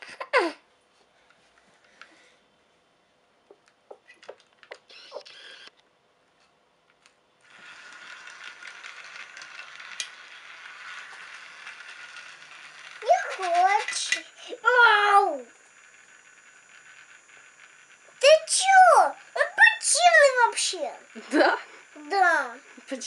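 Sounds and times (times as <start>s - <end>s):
toy train motor whirring: 4.1s - 5.8s, 7.4s - 23.0s
plastic track pieces clicking: 7.0s - 14.6s.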